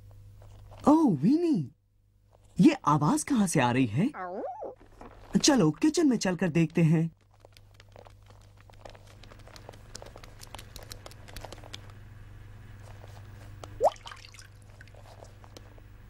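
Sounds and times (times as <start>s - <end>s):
low steady hum: 0.0s - 16.0s
faucet dripping: 13.8s - 14.6s.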